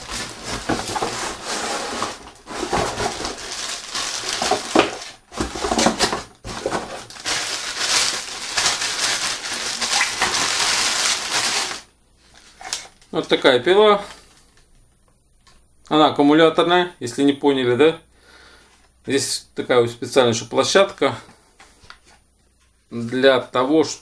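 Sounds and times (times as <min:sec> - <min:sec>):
packaging rustling and crackling: 0:00.0 - 0:13.2.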